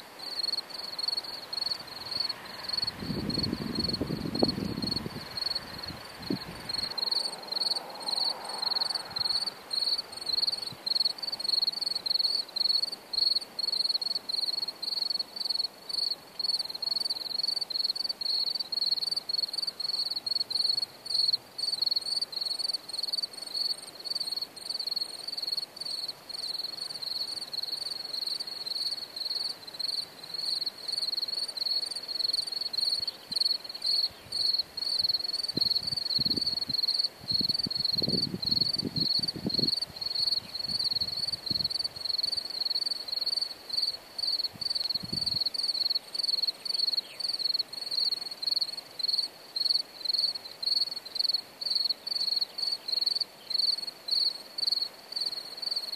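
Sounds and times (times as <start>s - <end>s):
cricket chirping: 0.0s - 55.9s.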